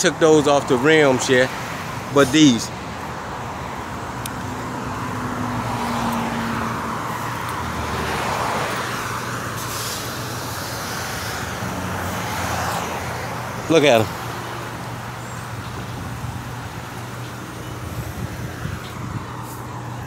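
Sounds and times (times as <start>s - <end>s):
hum of passing vehicles: 0.0s - 20.0s.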